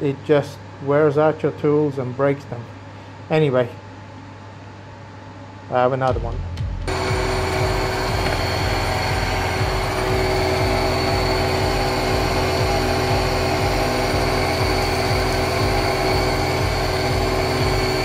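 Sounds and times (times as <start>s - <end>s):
milling machine cutting steel: 6.9s - 18.0s
mist coolant spraying: 6.9s - 18.0s.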